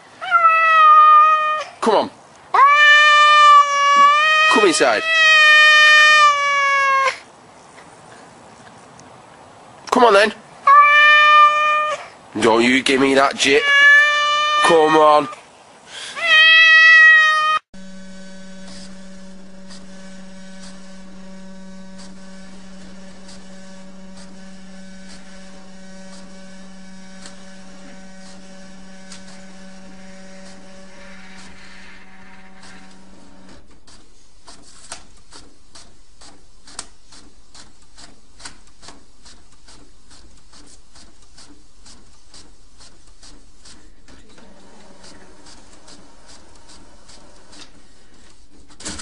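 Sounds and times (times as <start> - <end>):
low machine hum: 17.8 - 33.7.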